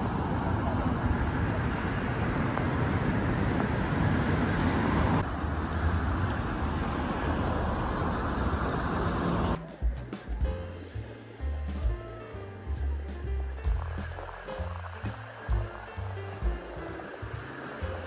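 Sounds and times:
cars driving past: 0.0s - 9.6s, 13.8s - 18.0s
city street traffic: 0.0s - 18.0s.

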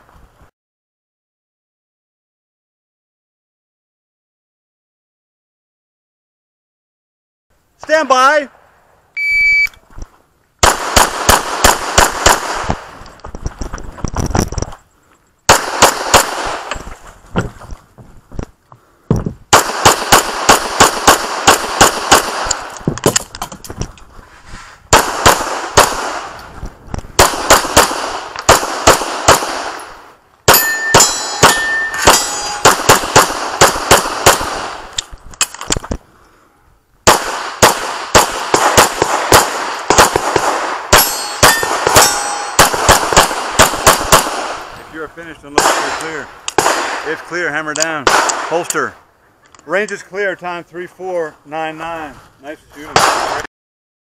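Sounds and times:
pistol shots: 10.6s - 12.9s, 15.5s - 16.8s, 19.5s - 23.2s, 24.9s - 26.4s, 27.2s - 34.9s, 37.0s - 44.8s, 45.5s - 48.9s, 52.9s - 53.5s
steel targets ringing: 30.5s - 32.7s, 40.9s - 42.7s.

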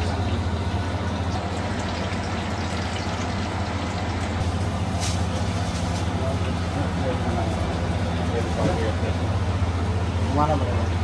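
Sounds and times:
food sizzling in hot oil: 0.0s - 6.7s.

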